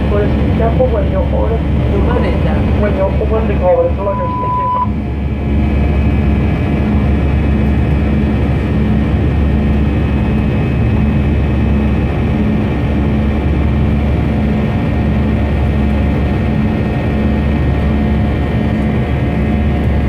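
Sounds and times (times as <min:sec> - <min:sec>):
aircraft cabin engine noise: 0:00.0 - 0:20.0
faint high whine: 0:00.1 - 0:05.1.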